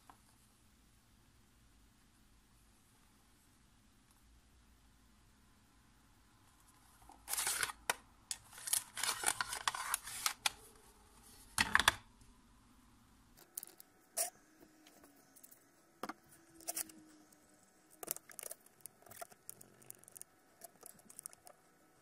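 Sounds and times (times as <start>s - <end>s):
calculator rubbing and clicking: 8.5s - 10.7s.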